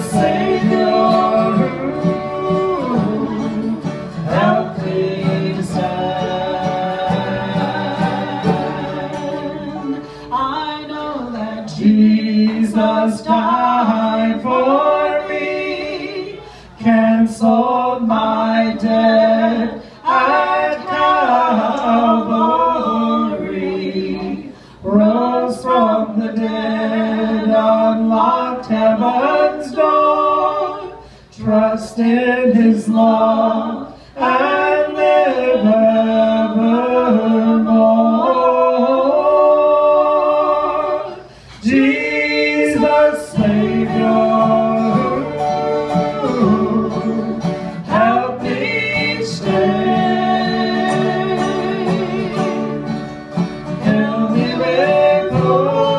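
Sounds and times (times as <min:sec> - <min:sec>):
mandolin: 0:00.0 - 0:14.6, 0:42.8 - 0:55.9
acoustic guitar: 0:00.0 - 0:55.9
group singing in harmony: 0:00.0 - 0:55.9.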